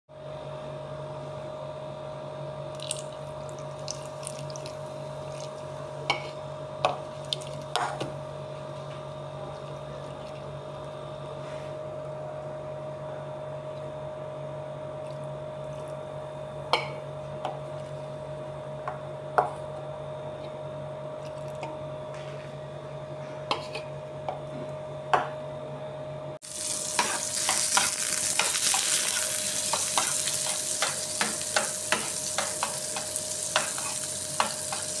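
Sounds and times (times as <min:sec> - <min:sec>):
low steady hum: 0:00.2 - 0:35.0
butter sizzling in frying pan: 0:02.8 - 0:05.8, 0:26.4 - 0:35.0
spoon scraping in pan: 0:26.6 - 0:35.0.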